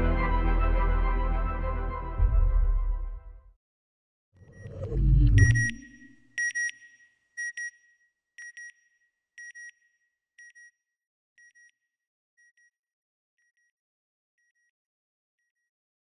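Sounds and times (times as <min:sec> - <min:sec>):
electronic double beeps: 0:04.4 - 0:06.3
low whooshing rumble: 0:04.5 - 0:06.0.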